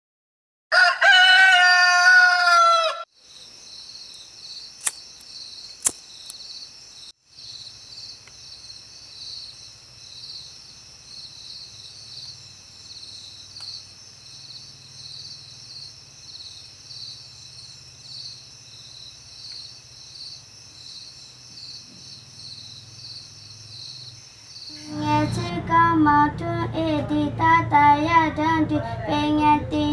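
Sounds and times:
rooster crowing: 0.7 - 3.1, 24.7 - 25.7
night insects chorus: 1.0 - 29.9
sharp clicks: 4.8 - 5.0
low hum: 24.7 - 29.9.

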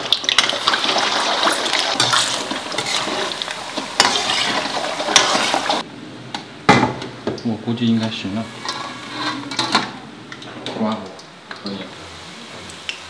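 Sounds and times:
oil sizzling and crackling: 0.0 - 5.9, 8.6 - 13.0
metal spatula stirring: 1.4 - 5.8.

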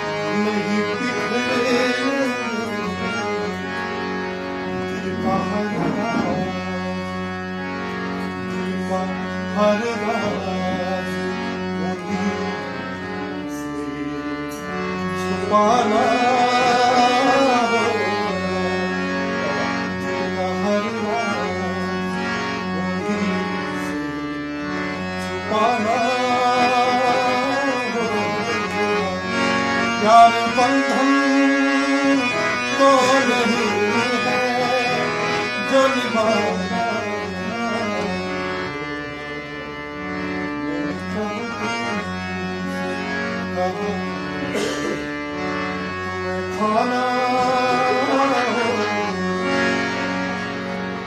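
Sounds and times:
harmonium chords: 0.0 - 51.0
man singing held notes: 4.8 - 7.1.

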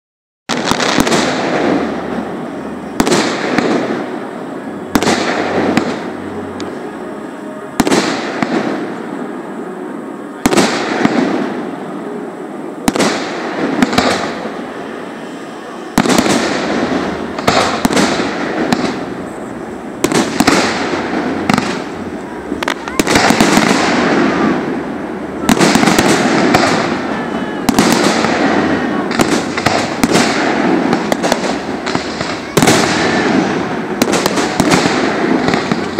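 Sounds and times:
firework shells bursting: 16.0 - 35.9.

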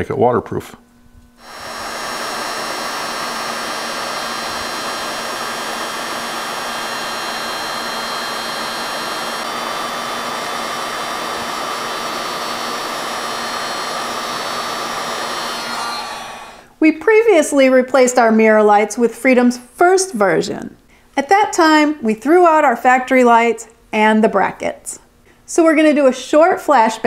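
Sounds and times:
heat gun blowing with fan whine: 1.2 - 16.8.

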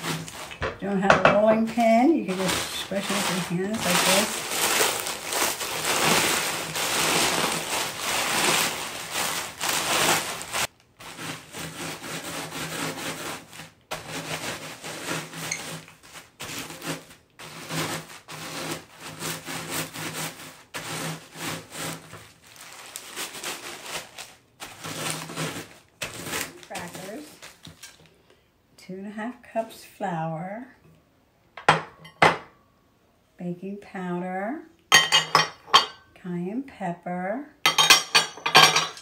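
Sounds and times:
rolling pin crushing crackers: 0.0 - 28.2
plastic bag crinkling: 0.0 - 28.3.

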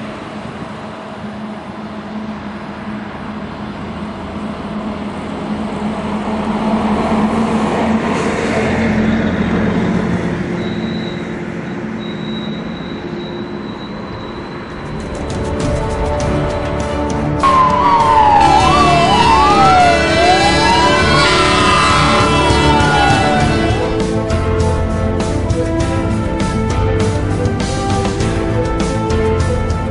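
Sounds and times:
passing vehicle engine and tyres: 2.2 - 11.9.

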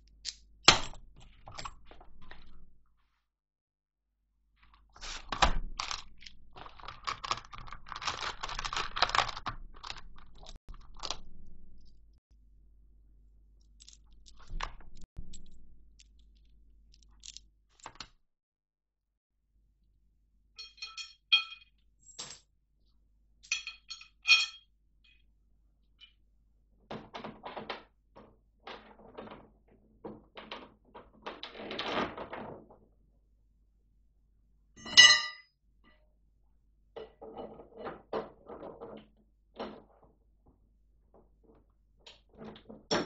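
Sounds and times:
metal fittings clinking: 20.6 - 22.4, 23.4 - 25.2.

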